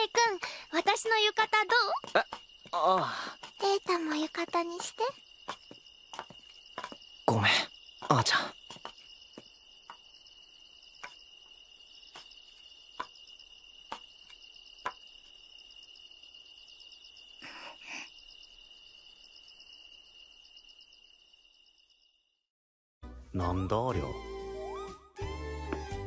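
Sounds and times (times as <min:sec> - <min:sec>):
crickets chirping: 0:00.0 - 0:22.5.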